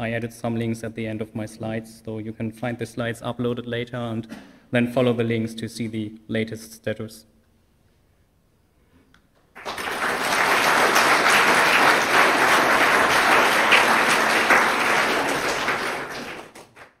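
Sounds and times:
audience applauding: 9.5 - 17.0.

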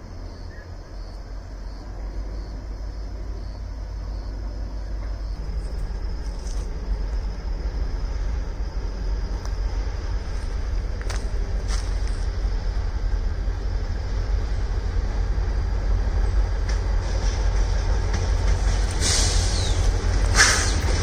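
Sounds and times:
diesel locomotive rumble: 0.0 - 21.0.

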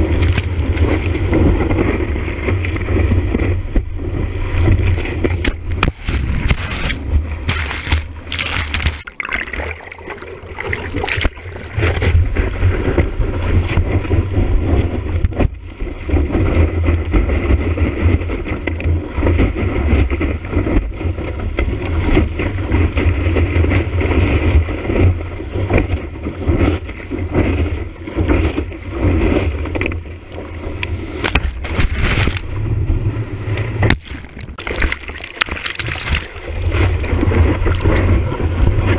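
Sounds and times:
wind buffeting microphone: 0.0 - 9.0, 10.0 - 38.9
sharp knocks and splashes: 0.0 - 14.2, 28.2 - 32.7, 33.5 - 38.9
surf rushing and splashing: 0.0 - 38.9.

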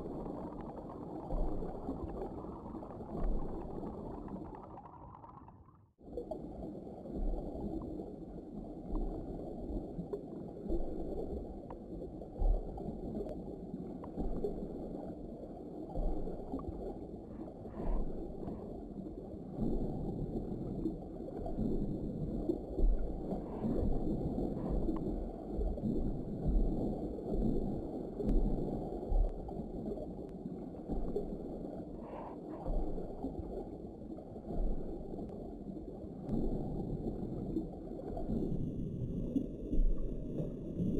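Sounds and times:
underwater rumble and gurgling: 0.0 - 40.9
low underwater thumps: 22.7 - 29.5.

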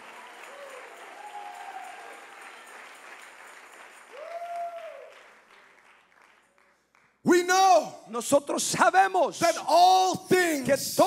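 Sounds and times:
crowd applauding and cheering: 0.0 - 7.2.

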